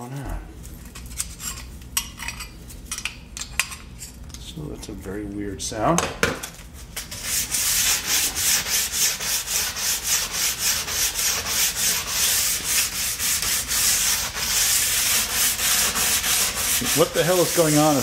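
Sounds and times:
file rasping along steel edge: 7.4s - 18.0s.

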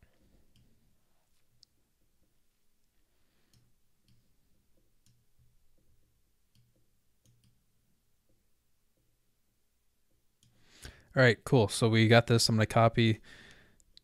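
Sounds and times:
soft clicks: 2.8s - 5.9s, 6.5s - 7.6s.

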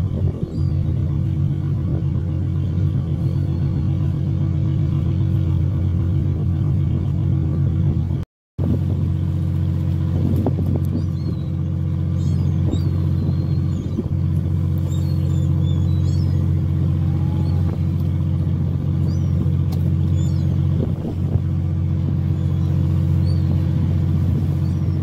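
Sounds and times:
boat engine droning: 0.0s - 25.0s
gull calls: 14.8s - 18.0s.

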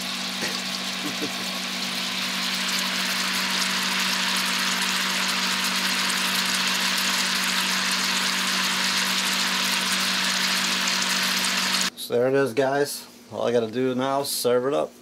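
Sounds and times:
meat sizzling in a skillet: 0.0s - 11.9s.

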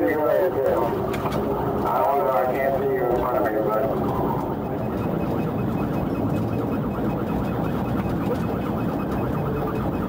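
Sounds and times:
car engine and road noise: 0.0s - 10.0s
police siren warbling: 0.0s - 10.0s.

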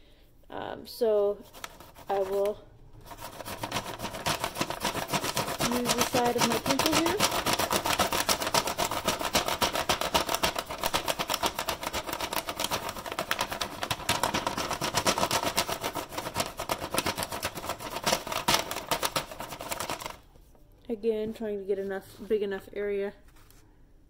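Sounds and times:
colored pencil rasping on paper: 1.4s - 20.2s.

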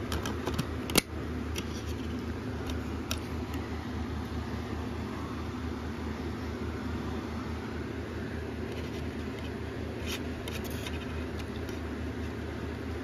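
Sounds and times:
discs clicking in plastic case: 0.0s - 3.6s, 8.7s - 11.8s
low background hum: 0.0s - 13.0s.

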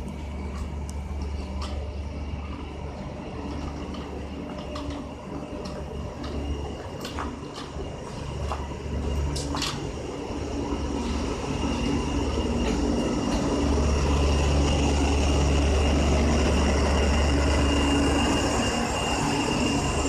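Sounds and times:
diesel locomotives passing: 0.0s - 20.0s
high wheel squeal: 11.0s - 20.0s.

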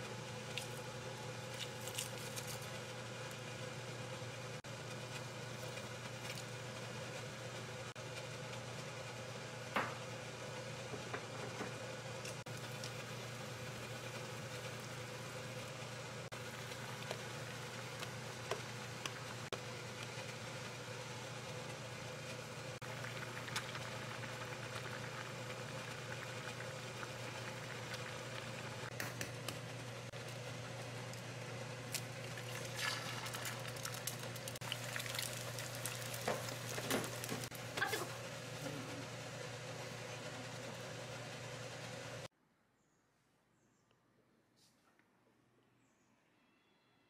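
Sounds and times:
stew bubbling: 22.8s - 29.0s, 31.9s - 38.1s.

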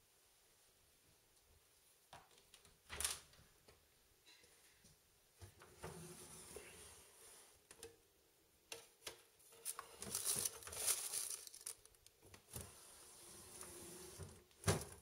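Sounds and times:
plastic packaging rustling: 9.5s - 12.6s.

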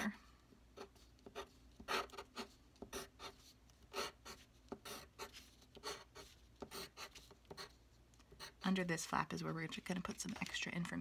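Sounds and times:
pencil scratching on paper: 0.7s - 8.9s.

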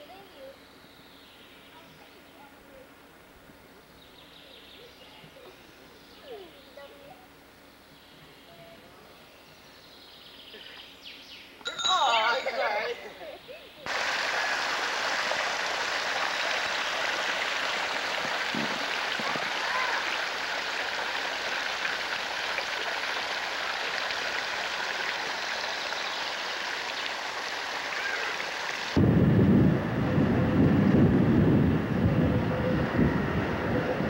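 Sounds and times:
water rushing over spillway: 13.9s - 29.1s.

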